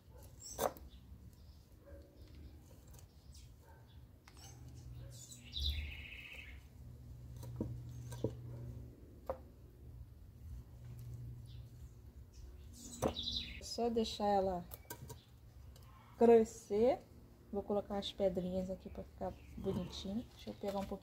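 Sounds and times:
bird chirp: 0:00.3 - 0:06.7, 0:11.4 - 0:14.0, 0:18.6 - 0:20.7
fingers rustling potting soil: 0:18.5 - 0:21.0.

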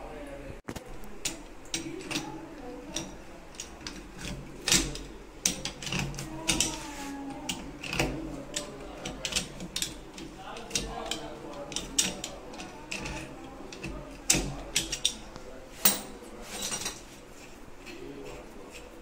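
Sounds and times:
pipe wrench clicking on metal: 0:07.5 - 0:15.2.

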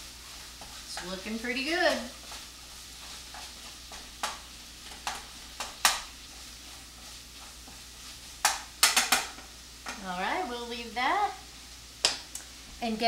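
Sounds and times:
wooden spatula scraping pan: 0:00.0 - 0:10.0
sausage sizzling in frying pan: 0:00.0 - 0:13.0.

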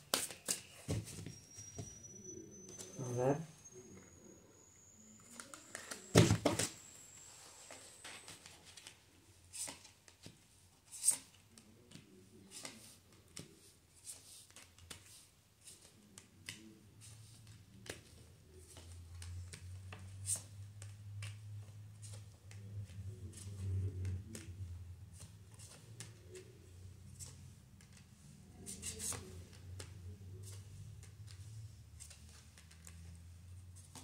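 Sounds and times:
cards clicking and tapping: 0:00.0 - 0:00.8, 0:14.1 - 0:16.7, 0:28.7 - 0:34.0.

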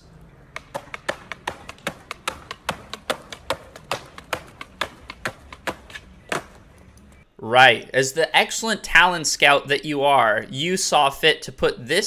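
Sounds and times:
skateboard clacking on concrete: 0:00.5 - 0:06.7.

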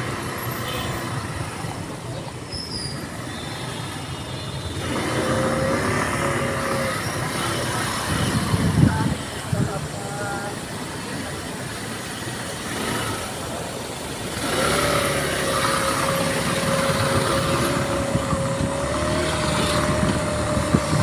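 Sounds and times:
vehicle engine running: 0:12.3 - 0:21.0.

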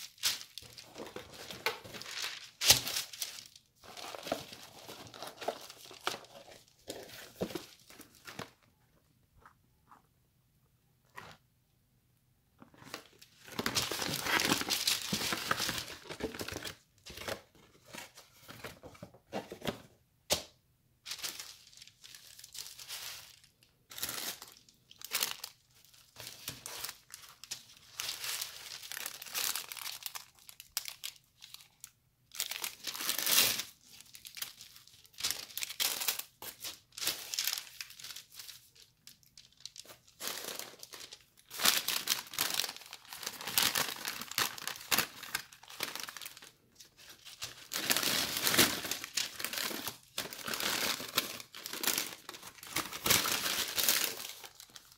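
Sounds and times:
paper bag crinkling: 0:00.0 - 0:08.6.

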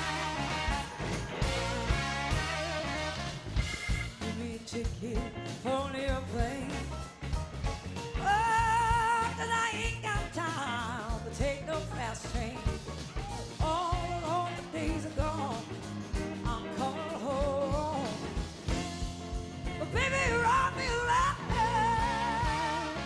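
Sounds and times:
drums: 0:00.0 - 0:23.0
electric guitar: 0:00.0 - 0:23.0
woman singing with vibrato: 0:04.2 - 0:06.9, 0:13.6 - 0:18.2, 0:19.7 - 0:23.0.

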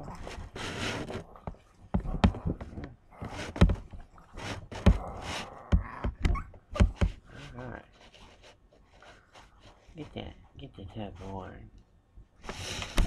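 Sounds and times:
hand rubbing dog fur: 0:00.2 - 0:02.4, 0:03.2 - 0:05.5, 0:06.8 - 0:10.2, 0:12.4 - 0:13.0.

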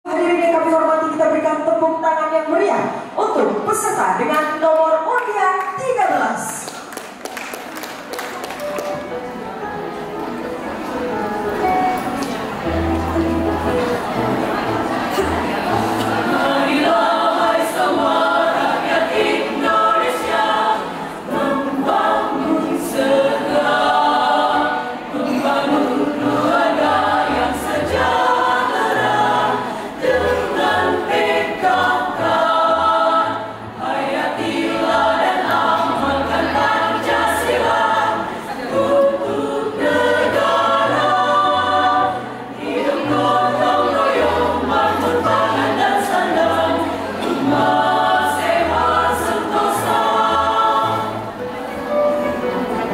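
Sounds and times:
choir singing a march: 0:12.7 - 0:51.5.

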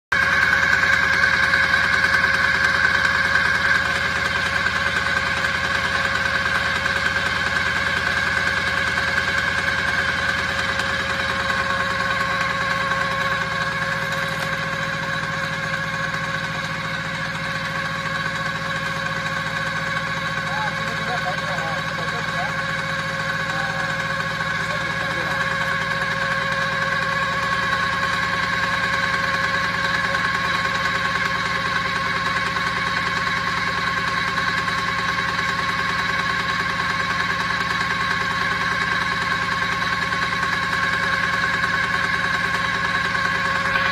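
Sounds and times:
core drill motor humming: 0:00.1 - 0:43.9.

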